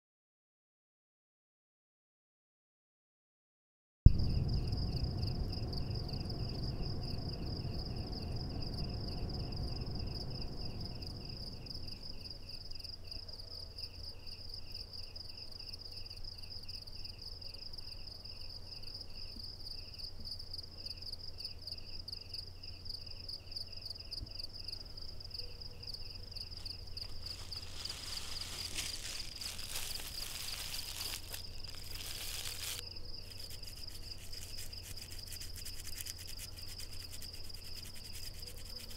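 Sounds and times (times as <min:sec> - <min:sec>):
deep rumble: 0:04.1 - 0:12.4
low hum: 0:04.1 - 0:12.5
insect high pulsing trill: 0:04.1 - 0:20.1, 0:20.8 - 0:38.9
cricket lower chirp: 0:04.1 - 0:38.9.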